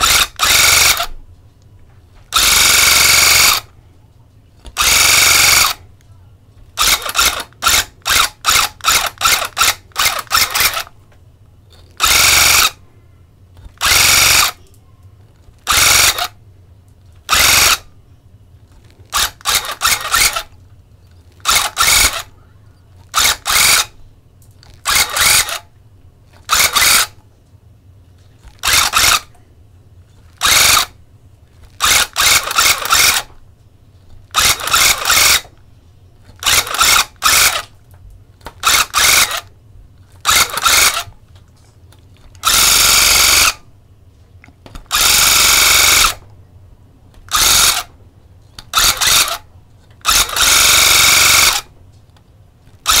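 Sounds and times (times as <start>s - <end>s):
electric tufting gun bursts: 26.5s - 27.2s.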